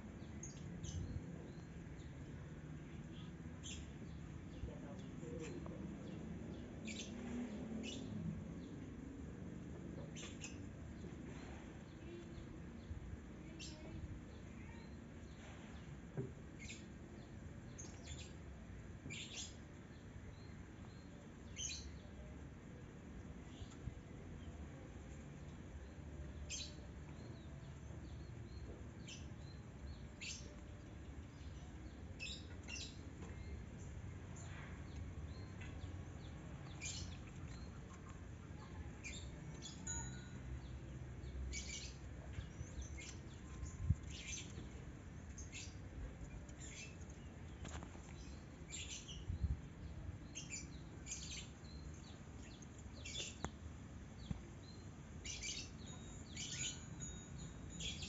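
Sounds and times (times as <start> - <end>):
faint outdoor rumble: 0.0 - 58.0
birds chirping: 0.1 - 9.2, 25.8 - 58.0.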